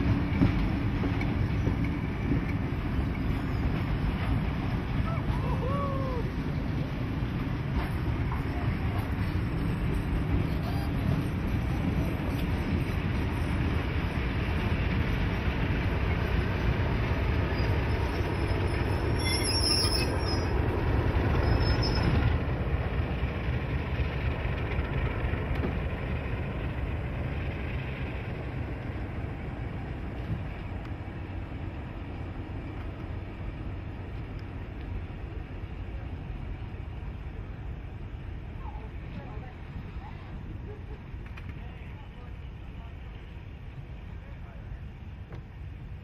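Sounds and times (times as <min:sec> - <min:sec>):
diesel locomotive engine rumbling: 0:00.0 - 0:46.0
high wheel squeal: 0:01.6 - 0:04.4, 0:17.4 - 0:22.4.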